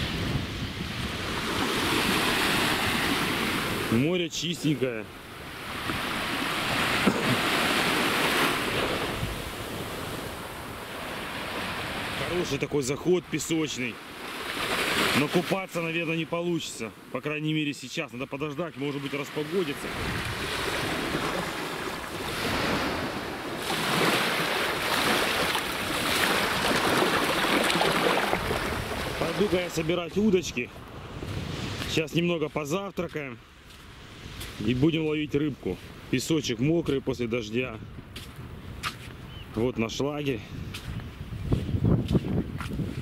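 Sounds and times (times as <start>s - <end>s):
wind buffeting microphone: 0.0s - 1.9s, 19.8s - 29.7s, 30.8s - 32.0s, 40.4s - 43.0s
small waves washing on sand: 0.0s - 36.4s.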